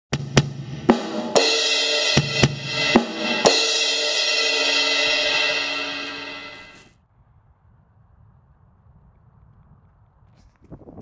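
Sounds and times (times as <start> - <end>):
drum hits: 0.1 - 6.8
cymbal ringing: 1.2 - 6.9.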